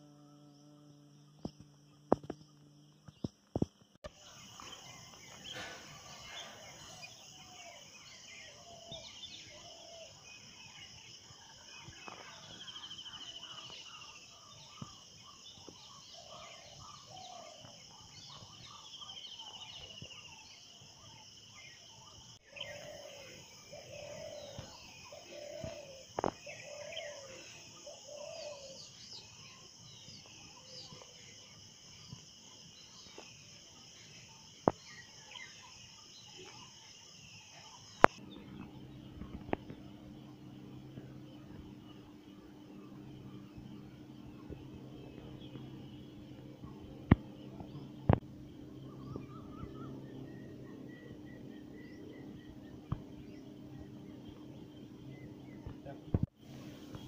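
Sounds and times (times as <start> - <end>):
high insect drone: 0.0 - 57.0
birds calling: 4.1 - 33.3, 37.5 - 57.0.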